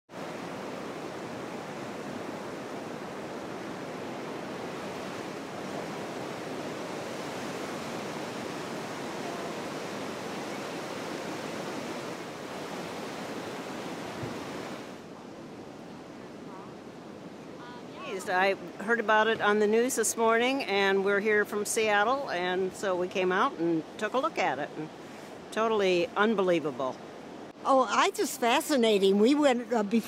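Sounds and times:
ocean surf breaking on beach: 0.1 - 30.0.

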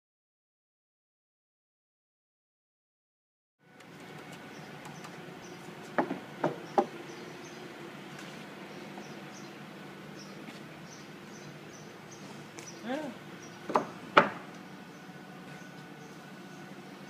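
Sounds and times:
steady hum: 3.6 - 17.0
lumber boards knocking: 5.9 - 7.0, 13.6 - 14.5.

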